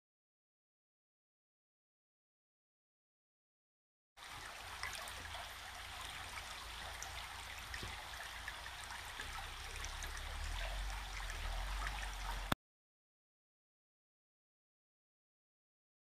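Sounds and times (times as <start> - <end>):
creek water rushing: 4.2 - 12.6.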